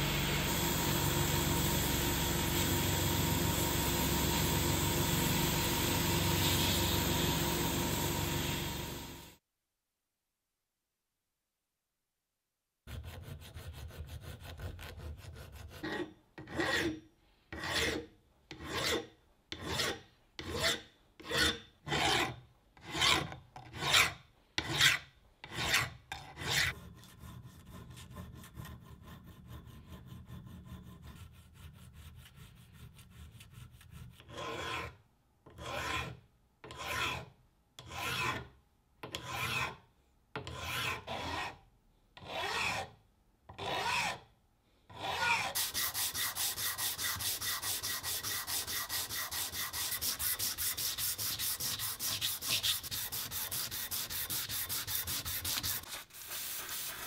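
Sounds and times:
file rasping on metal: 0:12.9 - 0:39.8, 0:40.4 - 0:41.6, 0:42.2 - 0:44.2, 0:44.9 - 0:57.0.

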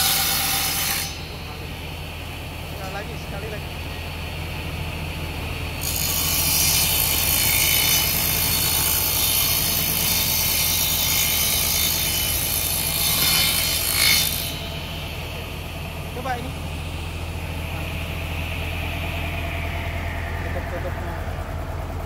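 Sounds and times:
saw blade cutting wood: 0:00.0 - 0:01.8, 0:05.8 - 0:21.5
table saw motor hum: 0:00.0 - 0:22.0.

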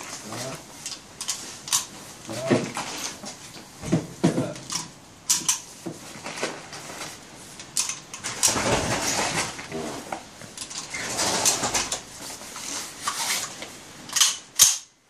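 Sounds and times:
rattling and handling noise: 0:00.0 - 0:14.9
metallic clicks of rifle loading: 0:14.1 - 0:14.9.

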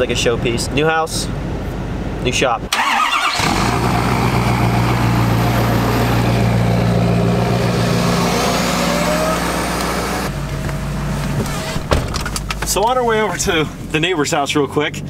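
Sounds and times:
diesel engine idling: 0:02.7 - 0:11.7.

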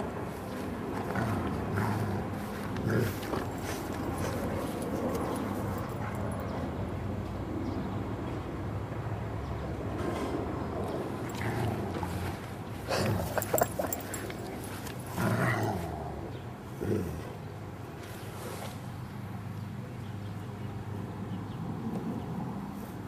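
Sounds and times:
steady low hum: 0:00.0 - 0:21.4
dog sounds: 0:11.2 - 0:17.4.

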